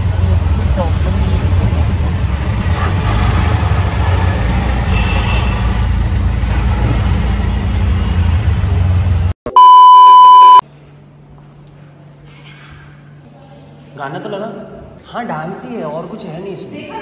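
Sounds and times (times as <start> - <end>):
car road and engine rumble: 0.0 - 9.4
loud electronic beep: 9.5 - 10.6.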